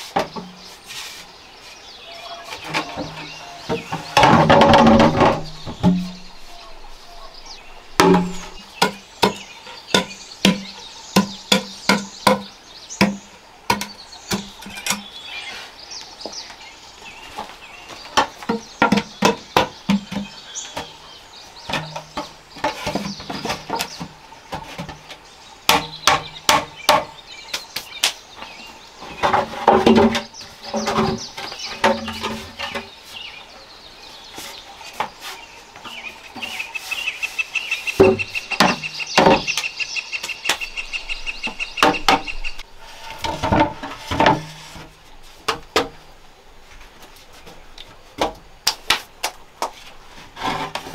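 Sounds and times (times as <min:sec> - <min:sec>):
wooden knocks of bamboo poles: 0:00.1 - 0:00.6, 0:02.5 - 0:06.3, 0:07.9 - 0:15.1, 0:17.4 - 0:21.0, 0:21.6 - 0:32.9, 0:37.9 - 0:40.7, 0:41.4 - 0:42.5, 0:43.1 - 0:46.0, 0:47.4 - 0:50.9
machete chopping bamboo: 0:08.0 - 0:14.5, 0:25.7 - 0:28.2.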